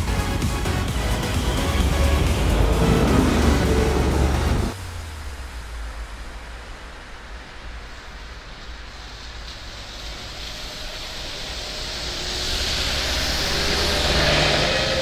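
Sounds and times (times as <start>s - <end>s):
bus engine passing: 0.0s - 6.2s, 9.9s - 15.0s
tyres hissing on wet road: 0.0s - 15.0s.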